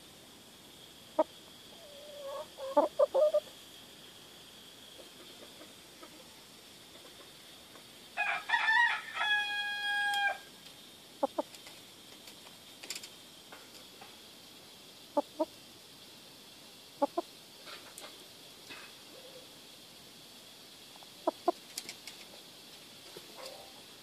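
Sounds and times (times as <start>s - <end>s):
chicken clucking: 1.2s - 3.5s, 11.2s - 11.5s, 15.2s - 15.5s, 17.0s - 17.3s, 21.2s - 21.6s
rooster crowing: 8.2s - 10.5s.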